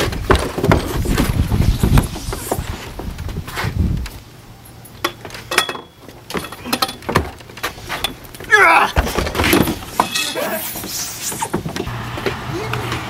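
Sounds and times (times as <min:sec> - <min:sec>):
knocks and clatter on wooden deck: 0:00.0 - 0:04.1, 0:05.0 - 0:10.1, 0:10.8 - 0:12.4
person shouting: 0:08.5 - 0:09.0.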